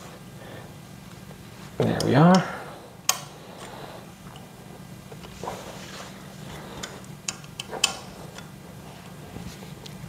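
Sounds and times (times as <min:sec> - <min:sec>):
soft rustle: 0:05.2 - 0:06.5
allen key clicking on screws: 0:06.8 - 0:08.5.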